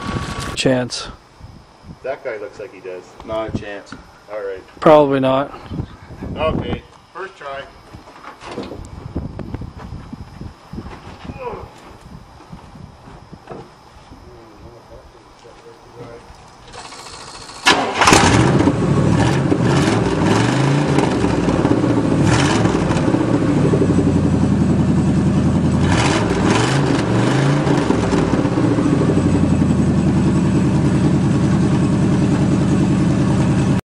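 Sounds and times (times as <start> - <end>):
truck engine starting and revving: 16.7 - 33.8
truck engine idling: 20.6 - 33.8.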